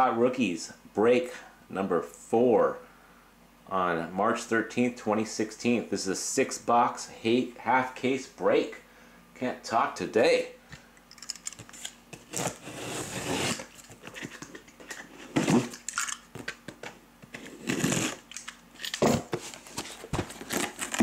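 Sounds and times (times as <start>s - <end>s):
cardboard scraping and rustling: 11.8s - 15.7s, 19.0s - 21.0s.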